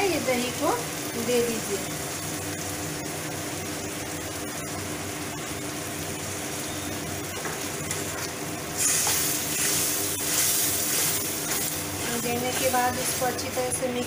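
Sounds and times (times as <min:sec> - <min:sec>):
masala sizzling in a pan: 0:00.0 - 0:14.0
spatula stirring: 0:08.8 - 0:13.4.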